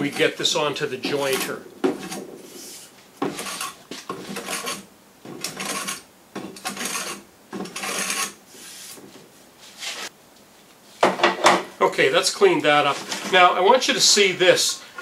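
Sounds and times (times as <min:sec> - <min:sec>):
hand plane scraping wood: 0:00.0 - 0:09.1.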